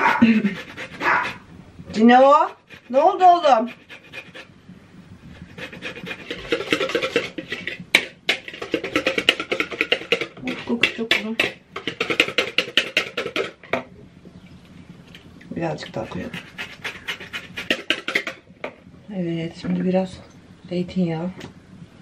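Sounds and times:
dog panting rapidly: 0:00.0 - 0:01.4, 0:02.1 - 0:04.5, 0:05.4 - 0:07.3, 0:16.0 - 0:17.9.

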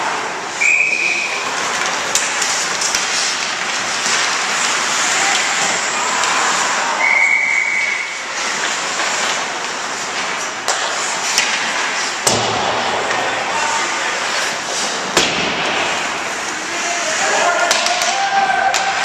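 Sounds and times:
crowd voices: 0:00.0 - 0:19.0
skates hissing on ice: 0:00.5 - 0:19.0
referee's whistle: 0:00.6 - 0:01.4, 0:07.0 - 0:08.2
sticks and puck cracking on boards: 0:01.0 - 0:07.0, 0:07.7 - 0:19.0.

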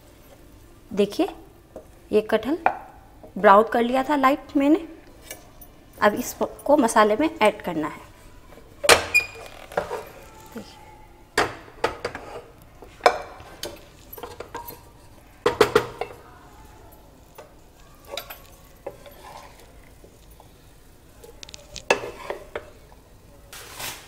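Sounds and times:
wooden spatula scraping metal pot: 0:07.9 - 0:10.6, 0:11.9 - 0:16.6, 0:17.2 - 0:20.6, 0:21.2 - 0:23.0.

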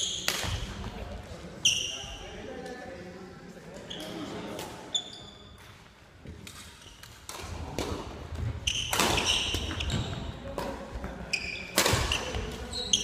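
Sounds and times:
rackets striking shuttlecock: 0:00.1 - 0:00.9, 0:06.4 - 0:10.8, 0:11.7 - 0:12.6
shoes squeaking on floor: 0:01.6 - 0:02.4, 0:03.8 - 0:07.2, 0:08.3 - 0:13.0.

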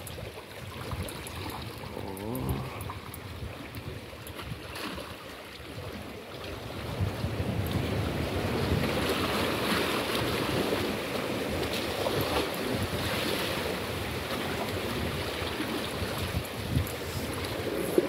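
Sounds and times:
sea washing against rocks: 0:00.0 - 0:18.0
wind buffeting microphone: 0:06.6 - 0:18.0.

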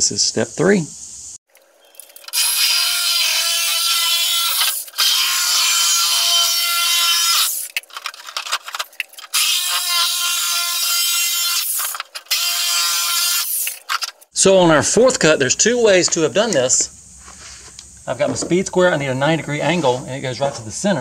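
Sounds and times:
reciprocating saw cutting plastic: 0:02.0 - 0:14.3.

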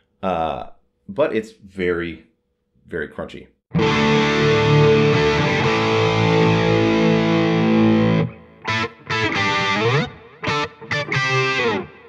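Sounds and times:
overdriven electric guitar chords: 0:03.7 - 0:12.0.

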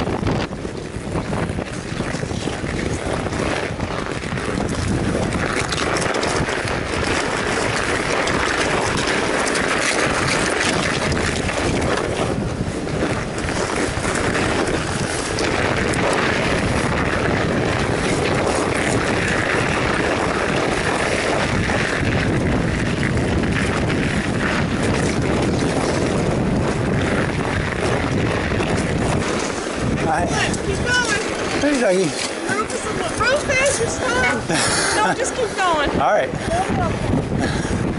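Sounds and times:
wind noise on microphone: 0:00.0 - 0:37.9.

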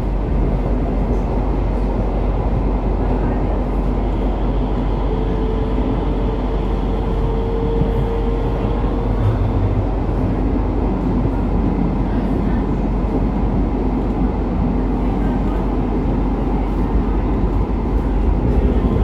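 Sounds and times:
light-rail wheels rumbling: 0:00.0 - 0:19.0.

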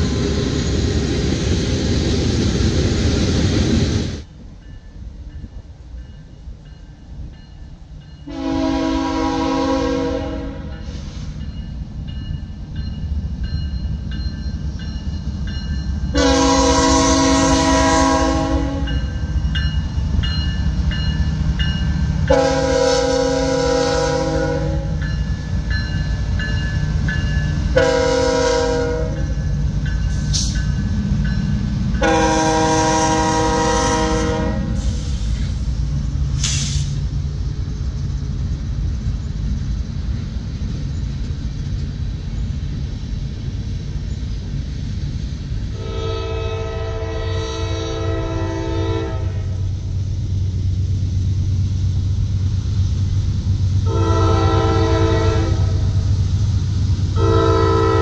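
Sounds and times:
locomotive air horn blasts: 0:08.3 - 0:11.3, 0:16.1 - 0:19.0, 0:22.3 - 0:25.0, 0:27.7 - 0:29.3, 0:32.0 - 0:35.3, 0:45.7 - 0:49.6, 0:53.8 - 0:56.0, 0:57.2 - 0:58.0
engine and wheel rumble: 0:34.8 - 0:45.9.

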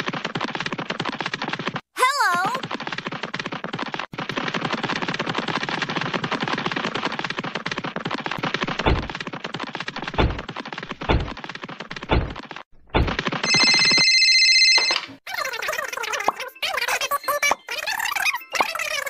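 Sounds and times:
deep thuds: 0:08.4 - 0:09.2, 0:10.0 - 0:13.3
phone ringtone: 0:13.4 - 0:15.2.

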